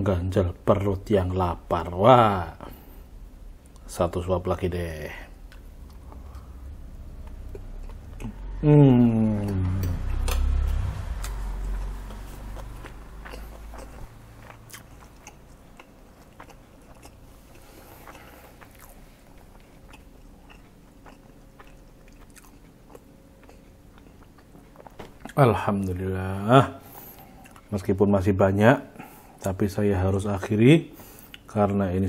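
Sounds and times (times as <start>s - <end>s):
person chewing: 5.3s - 25.4s, 26.8s - 27.7s.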